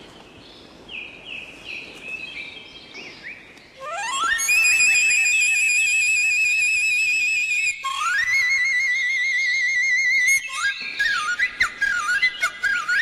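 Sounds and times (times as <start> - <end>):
bamboo flute playing: 3.8 - 13.0.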